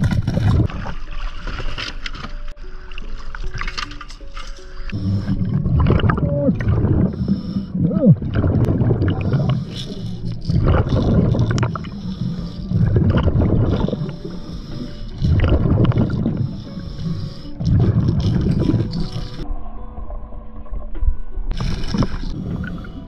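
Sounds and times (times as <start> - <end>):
underwater exhaled bubbles rumbling: 4.9 - 23.0.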